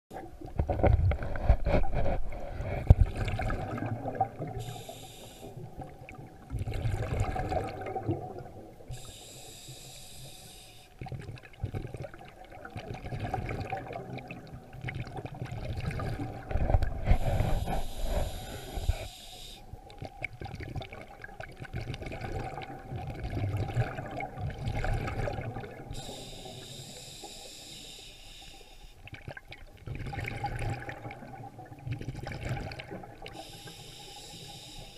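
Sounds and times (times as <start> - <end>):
exhaled bubbles rumbling: 0.1 - 4.8, 5.6 - 9.1, 11.0 - 19.1, 19.7 - 26.1, 29.0 - 33.4
regulator hiss on inhale: 4.6 - 5.7, 8.9 - 11.0, 17.0 - 19.8, 25.9 - 29.0, 33.3 - 34.9.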